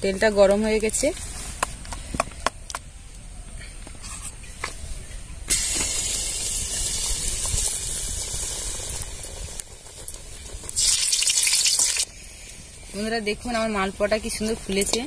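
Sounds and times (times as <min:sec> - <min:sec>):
batter sizzling in hot oil: 0:05.5 - 0:15.0.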